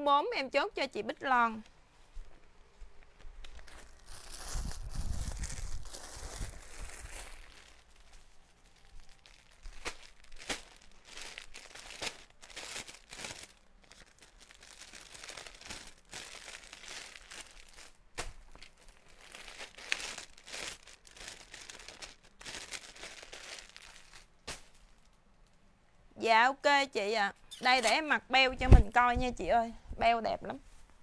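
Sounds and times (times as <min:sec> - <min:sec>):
plastic packaging crinkling: 0:03.4 - 0:25.2.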